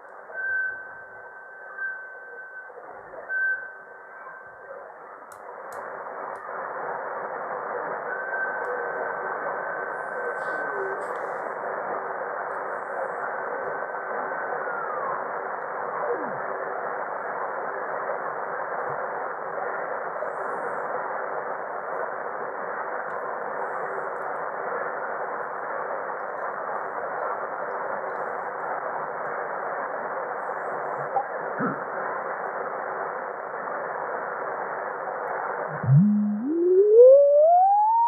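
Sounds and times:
radio band hiss: 0:04.7 - 0:38.0
heterodyne whistle: 0:35.7 - 0:38.0.

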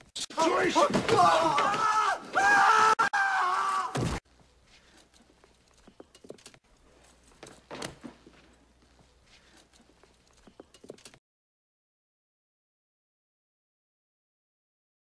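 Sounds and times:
man screaming: 0:00.4 - 0:04.0
faint clicks and shuffles: 0:04.3 - 0:11.2.

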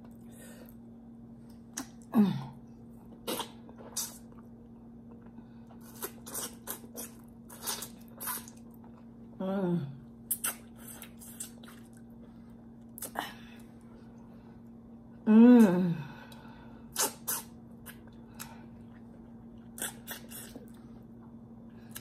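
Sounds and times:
person humming mmm: 0:01.8 - 0:02.6, 0:15.2 - 0:16.4
lip-smacking and chewing: 0:03.1 - 0:09.2, 0:10.3 - 0:13.8, 0:16.9 - 0:22.0.

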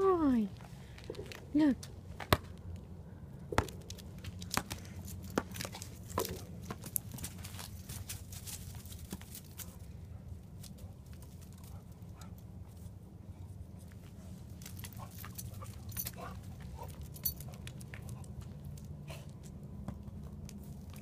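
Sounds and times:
low hum: 0:00.0 - 0:21.0
dog scrabbling on dry ground: 0:04.4 - 0:09.9.

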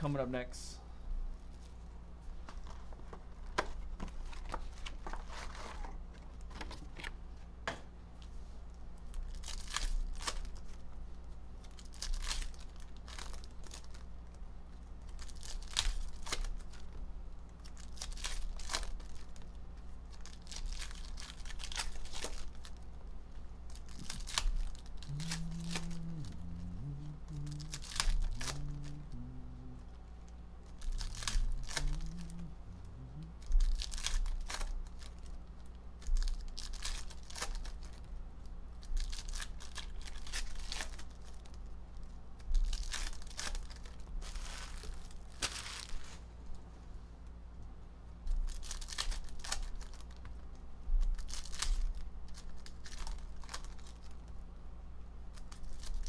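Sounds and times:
wrappers crinkling: 0:09.0 - 0:10.9, 0:11.6 - 0:29.9, 0:30.6 - 0:46.3, 0:48.3 - 0:50.4, 0:51.0 - 0:54.4, 0:55.3 - 0:56.0
foil packs tearing open: 0:11.7 - 0:14.0, 0:15.1 - 0:16.8, 0:20.1 - 0:22.8, 0:23.7 - 0:29.2, 0:30.8 - 0:35.2, 0:36.1 - 0:38.0, 0:42.6 - 0:46.1, 0:48.4 - 0:50.2, 0:51.0 - 0:54.1.

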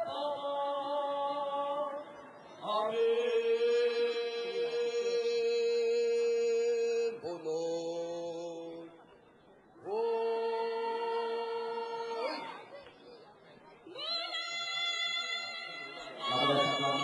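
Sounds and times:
voices chanting long notes: 0:15.9 - 0:17.0.

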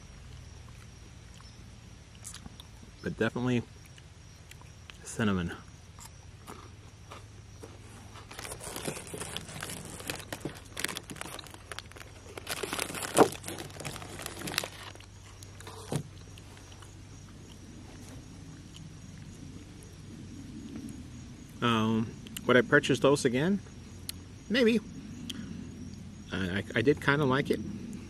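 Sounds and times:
faint steady hum: 0:00.0 - 0:28.0
crunching wafer bar: 0:08.1 - 0:16.9.

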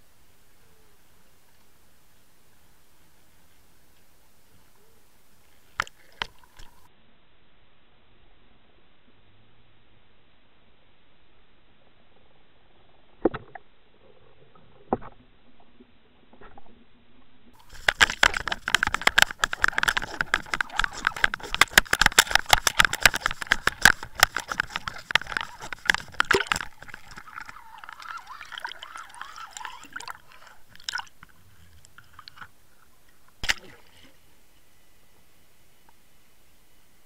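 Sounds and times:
crackling knocks: 0:17.6 - 0:28.4
water splashing and churning: 0:17.6 - 0:34.3.

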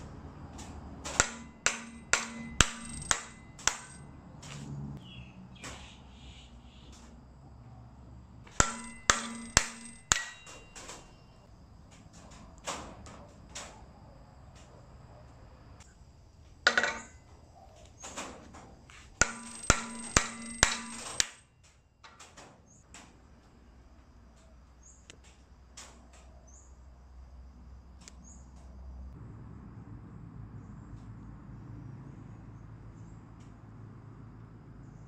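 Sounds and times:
mallet striking wooden block: 0:01.2 - 0:04.0, 0:08.6 - 0:10.8, 0:19.2 - 0:21.3
ringing tone: 0:08.6 - 0:11.4.

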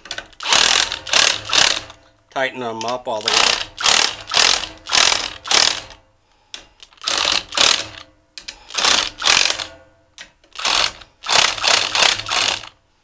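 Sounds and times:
impact driver hammering bolts: 0:00.0 - 0:02.0, 0:03.2 - 0:06.0, 0:07.0 - 0:09.8, 0:10.6 - 0:12.7.

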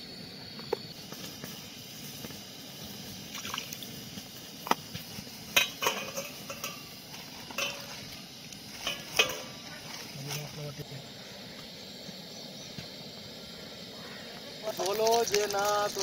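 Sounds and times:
steady low hiss: 0:00.0 - 0:16.0
metal plate clinking on pan rim: 0:05.5 - 0:08.0, 0:08.8 - 0:09.7.

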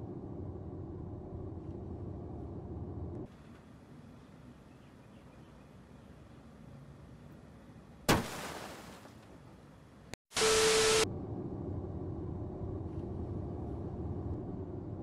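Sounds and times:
car road rumble from inside: 0:00.0 - 0:03.3, 0:11.0 - 0:15.0.

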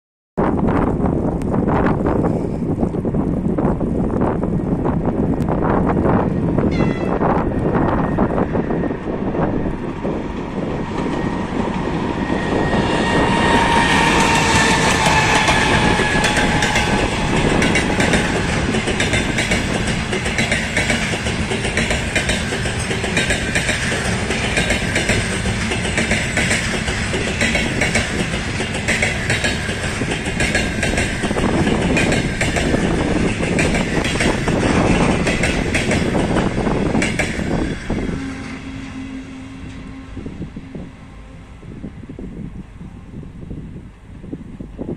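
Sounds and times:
electric locomotive whine: 0:00.4 - 0:44.9
train wheels clicking over rail joints: 0:09.5 - 0:39.0.

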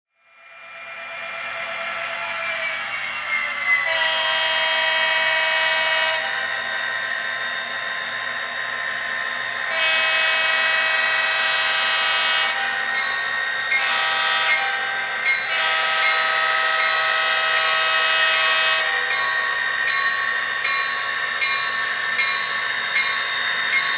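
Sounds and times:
locomotive horn blasts: 0:03.8 - 0:06.4, 0:09.7 - 0:12.8, 0:13.7 - 0:14.9, 0:15.5 - 0:19.2.

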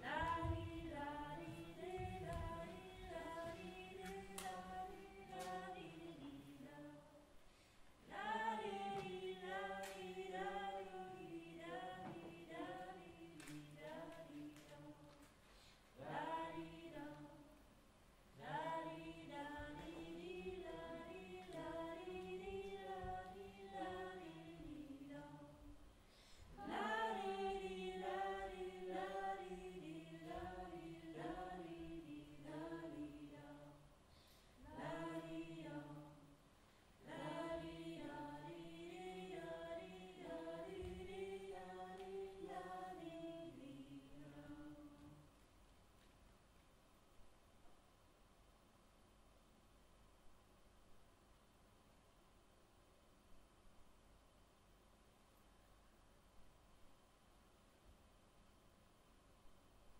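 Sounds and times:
group singing in harmony: 0:00.0 - 0:07.2, 0:08.0 - 0:15.1, 0:16.0 - 0:17.6, 0:18.4 - 0:25.7, 0:26.5 - 0:33.9, 0:34.6 - 0:36.3, 0:37.0 - 0:45.3.

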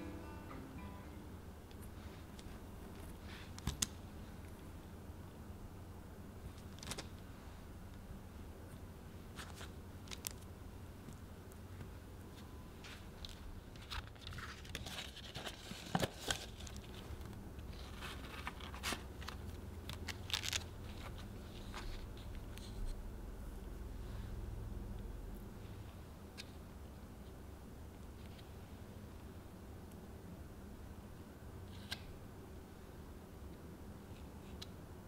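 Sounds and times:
parchment paper crinkling: 0:06.6 - 0:07.2, 0:12.9 - 0:22.8.

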